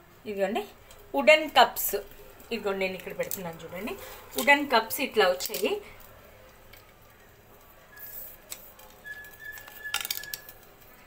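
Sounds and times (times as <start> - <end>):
faint high whistle-like tone: 9.0 - 10.6.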